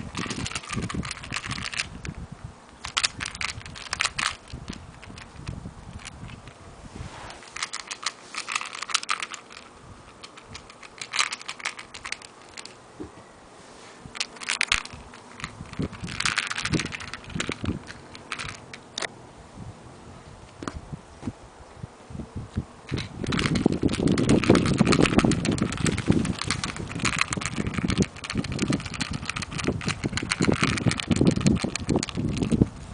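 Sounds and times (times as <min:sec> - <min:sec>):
kittens scratchy rustling: 0:00.0 - 0:02.1, 0:02.9 - 0:12.8, 0:22.9 - 0:32.9
claw clicks: 0:00.0 - 0:06.6, 0:07.4 - 0:12.8, 0:14.1 - 0:19.1, 0:22.9 - 0:32.8.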